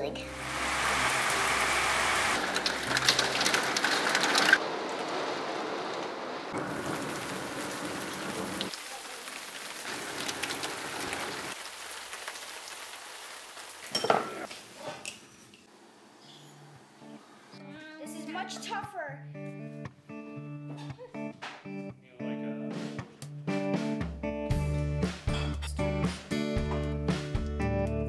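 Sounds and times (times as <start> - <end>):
heavy rain on glass and patio: 0.4 - 14.8.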